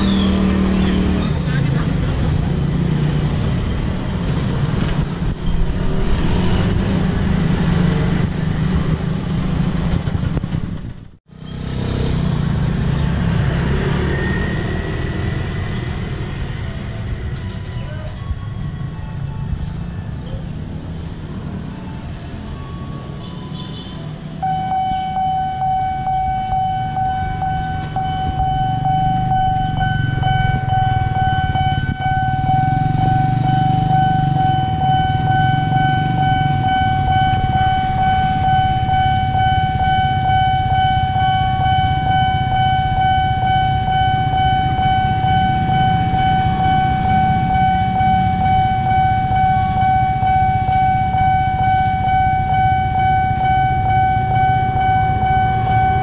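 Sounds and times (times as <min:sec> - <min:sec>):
traffic rumble: 0:00.0 - 0:56.0
level crossing alarm tone: 0:24.4 - 0:56.0.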